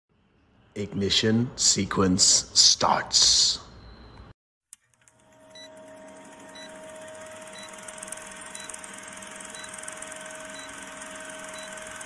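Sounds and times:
projector whirr: 4.9 - 12.0.

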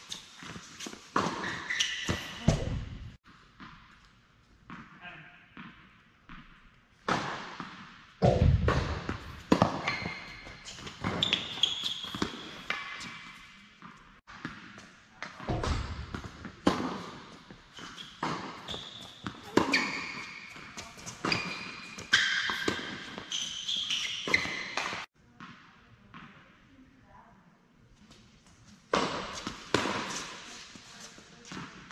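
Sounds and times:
shoes squeaking on court: 0.0 - 3.0, 9.1 - 25.1
tennis ball bouncing: 5.6 - 10.2, 18.2 - 26.3
racket striking tennis ball: 5.6 - 13.2, 15.4 - 23.3, 23.9 - 25.1, 28.9 - 30.5.

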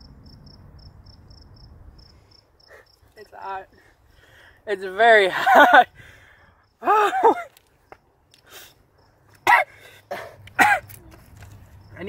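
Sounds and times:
man laughing: 5.1 - 6.0, 6.8 - 7.6
man coughing: 6.9 - 7.5, 9.4 - 11.0.

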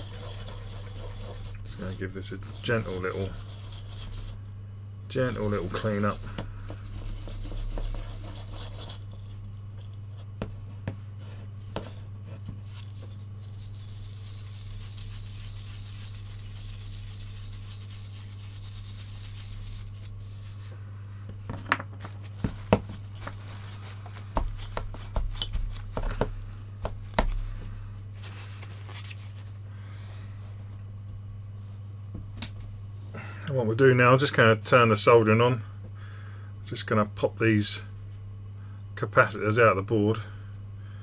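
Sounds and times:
toothbrush scrubbing circuit board: 0.0 - 4.4, 5.2 - 9.9, 12.8 - 20.1
steady low hum: 0.0 - 41.0.

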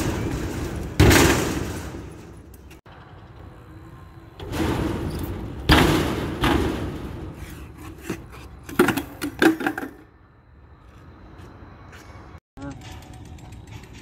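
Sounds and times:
bike crashing onto concrete: 0.0 - 2.5, 8.6 - 10.0.

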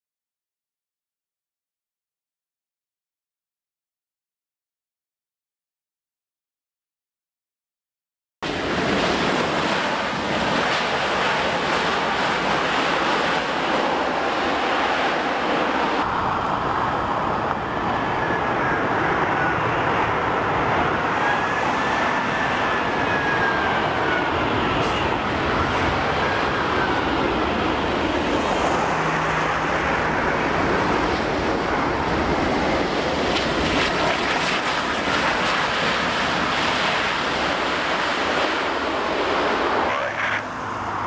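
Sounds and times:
jet engines rushing: 8.4 - 41.0.

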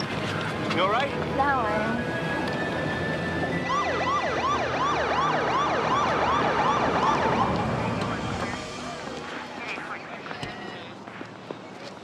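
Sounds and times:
police siren yelping: 1.8 - 9.0.

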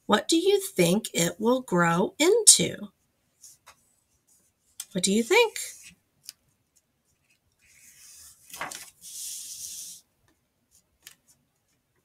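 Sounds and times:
book page turning: 4.7 - 10.0.

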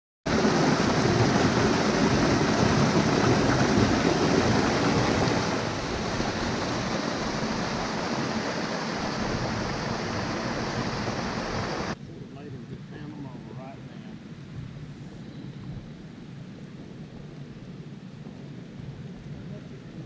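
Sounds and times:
water pouring over rocks: 0.3 - 12.0.

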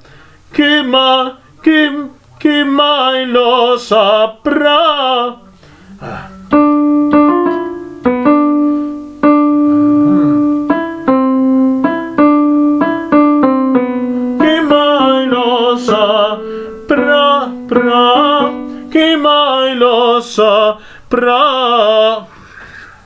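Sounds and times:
man singing with vibrato: 0.5 - 8.3, 9.3 - 10.8, 13.7 - 22.4
piano accompaniment: 6.1 - 20.2.

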